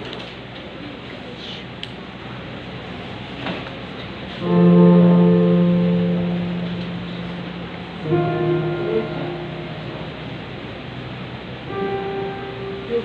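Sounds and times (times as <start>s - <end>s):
slow piano chords: 4.4s - 13.0s.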